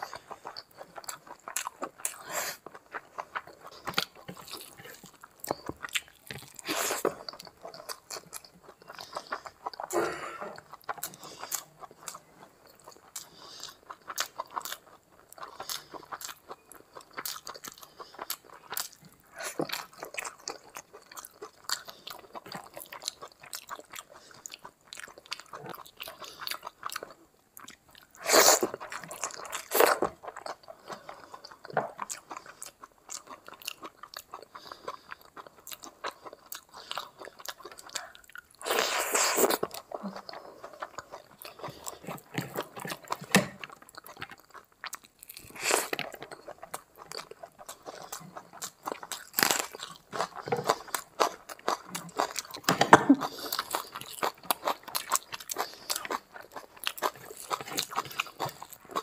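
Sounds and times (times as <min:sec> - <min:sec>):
chewing with wet mouth clicks: 0:00.0 - 0:59.0.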